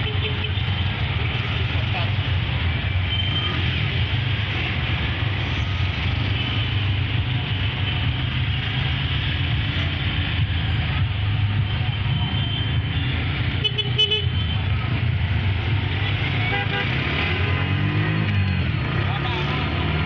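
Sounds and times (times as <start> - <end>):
low rumble of road traffic: 0.0 - 20.0.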